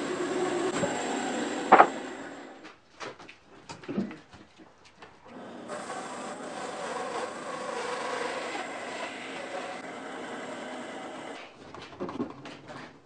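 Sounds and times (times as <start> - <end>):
log knocks and thumps: 1.7 - 2.0
bandsaw running: 5.3 - 11.4.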